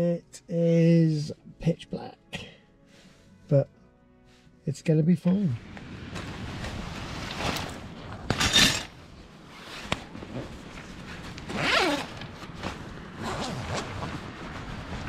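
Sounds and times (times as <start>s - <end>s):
nylon fabric rustling: 6.1s - 15.0s
zip pulls: 9.5s - 15.0s.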